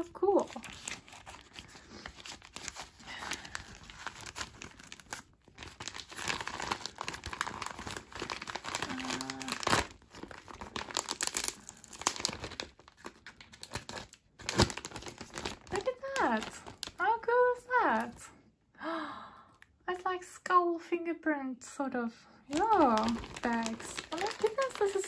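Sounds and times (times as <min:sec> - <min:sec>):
plastic bag crinkling: 0:00.2 - 0:17.2, 0:17.9 - 0:18.2, 0:22.5 - 0:25.0.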